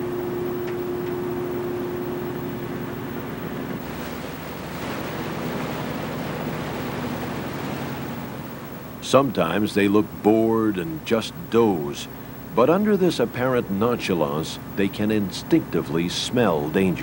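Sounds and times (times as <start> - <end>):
boat engine humming: 0.0 - 17.0
water rushing in wake: 0.0 - 17.0.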